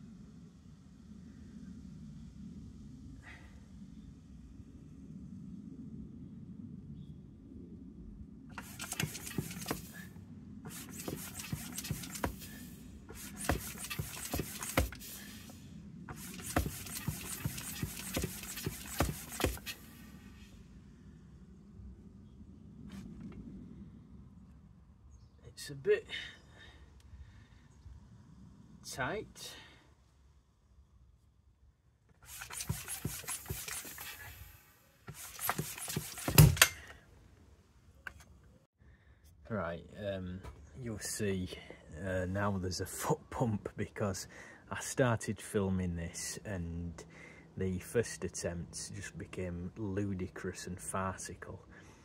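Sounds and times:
hand tyre pump hissing: 8.6 - 10.1, 10.7 - 20.4, 32.2 - 36.9.

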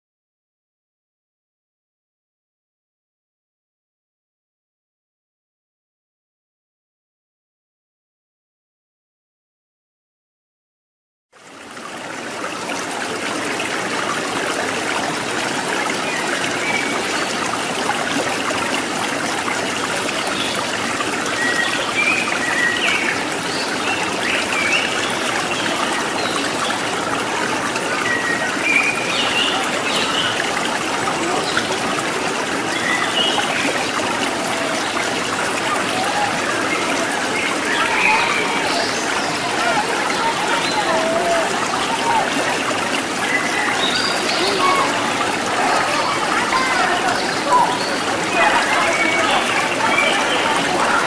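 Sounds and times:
waterfall splashing into pool: 11.4 - 51.0.

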